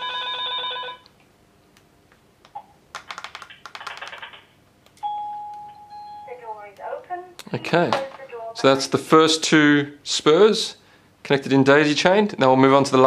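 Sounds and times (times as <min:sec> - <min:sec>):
intercom ring tone: 0:00.0 - 0:01.1.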